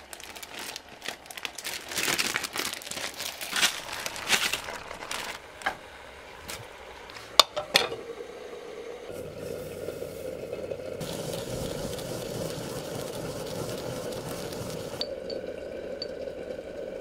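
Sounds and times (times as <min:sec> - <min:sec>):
plastic bags crinkling: 0:00.0 - 0:05.8
faint steady hum: 0:02.9 - 0:17.0.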